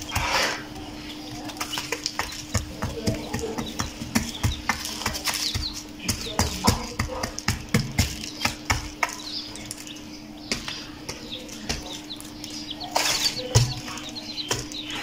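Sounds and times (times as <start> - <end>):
chicks peeping: 0.0 - 15.0
chicks scratching on cardboard: 0.0 - 15.0.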